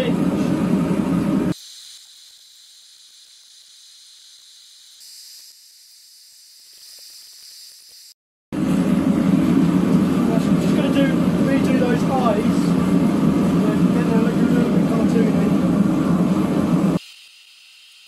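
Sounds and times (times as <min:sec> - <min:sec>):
gas burner roaring: 0:00.0 - 0:01.6, 0:07.9 - 0:17.0.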